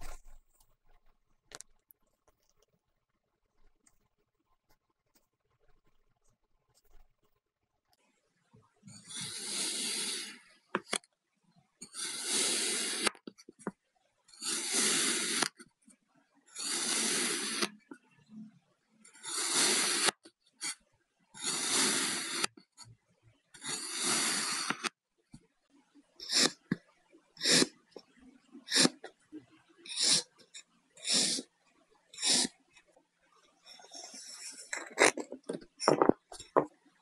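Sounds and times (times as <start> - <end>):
sand being cut: 9.1 - 10.4, 11.9 - 13.1, 14.4 - 15.5, 16.6 - 17.7, 19.2 - 20.2, 21.4 - 22.5, 23.6 - 24.9, 27.4 - 27.8.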